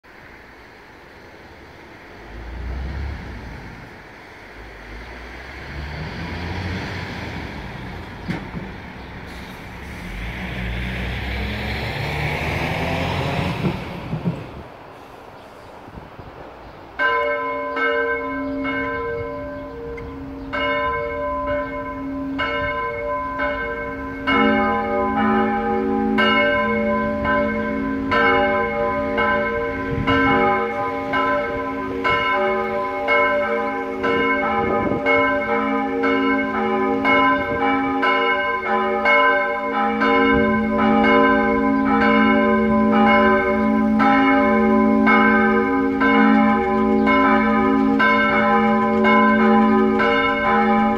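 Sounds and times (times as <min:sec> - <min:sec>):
church bell striking: 0:17.0 - 0:50.9
lower-pitched church bell: 0:17.0 - 0:50.9.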